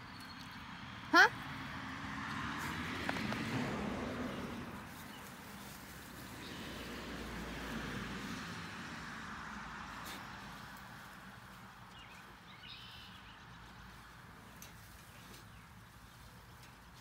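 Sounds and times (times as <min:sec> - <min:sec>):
shrub branches rustling: 0:02.6 - 0:08.8, 0:09.9 - 0:17.0.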